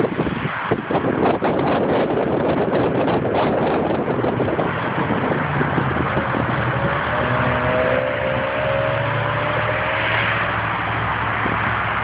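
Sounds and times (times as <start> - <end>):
road and traffic noise: 0.0 - 12.0
car engine driving off: 3.0 - 12.0.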